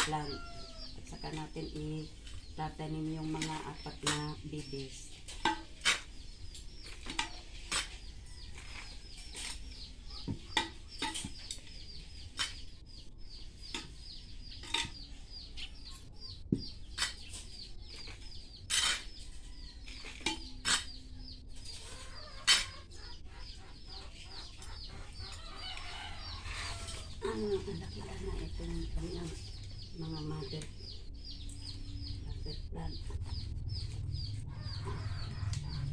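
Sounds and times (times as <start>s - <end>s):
trowel scraping terracotta pot: 17.0s - 21.0s, 21.6s - 22.9s.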